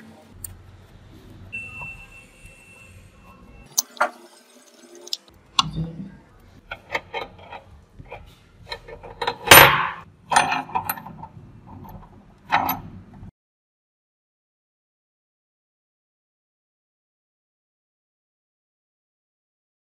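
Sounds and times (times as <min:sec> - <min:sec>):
metal parts clattering: 0:06.7 - 0:13.0.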